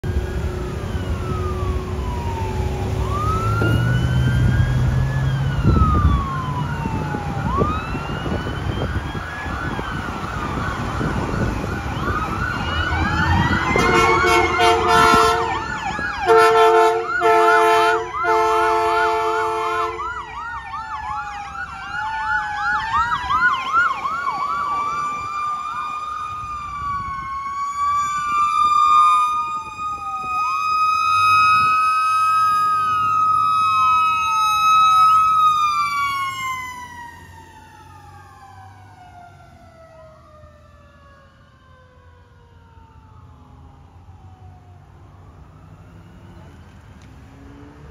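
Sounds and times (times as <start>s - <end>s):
electronic sirens wailing and yelping: 0.0s - 47.9s
truck horn blasts: 13.6s - 15.7s, 16.3s - 20.0s.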